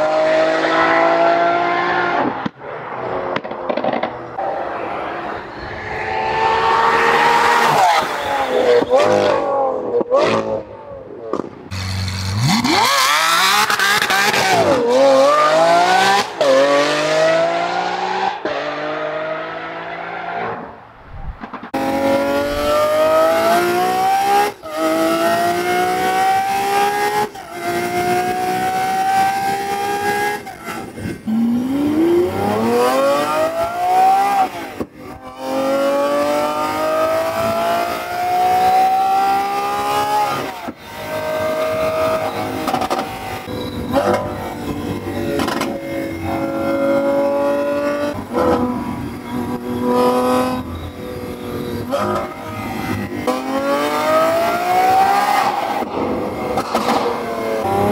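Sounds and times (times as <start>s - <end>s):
sports car revving past: 0.0s - 10.6s, 11.7s - 57.9s
car accelerating with upshifts: 0.0s - 57.9s.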